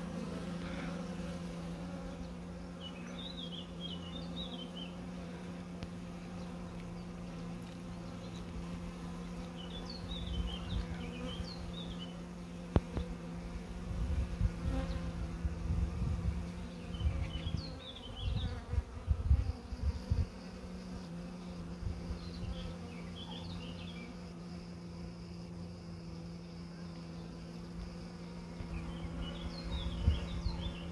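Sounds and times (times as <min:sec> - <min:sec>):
bees buzzing: 0:00.0 - 0:30.9.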